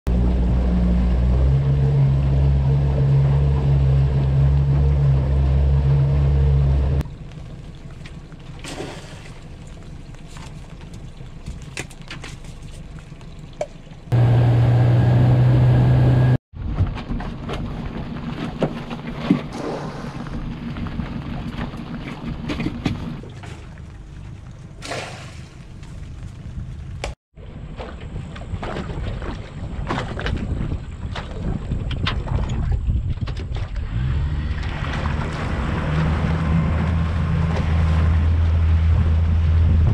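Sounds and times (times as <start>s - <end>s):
water lapping against hull: 0.1s - 14.2s, 17.6s - 39.9s
outboard motor running: 0.1s - 16.4s
knocks and splashes: 7.0s - 14.2s, 16.6s - 39.9s.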